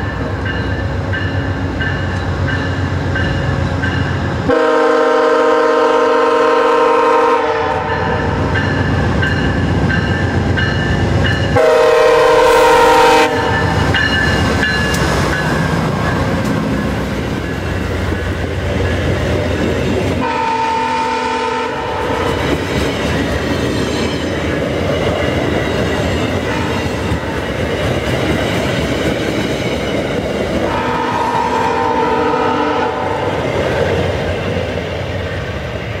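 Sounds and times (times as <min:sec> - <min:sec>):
train wheels on rails: 0:00.0 - 0:36.0
train horn blasts: 0:04.4 - 0:08.5, 0:11.5 - 0:13.8, 0:20.2 - 0:22.4, 0:26.4 - 0:26.9, 0:30.6 - 0:33.4.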